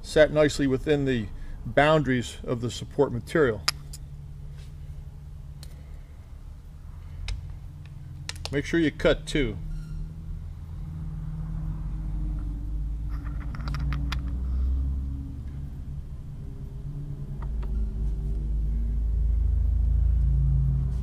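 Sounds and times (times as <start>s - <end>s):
low steady hum with tones: 0.0s - 21.0s.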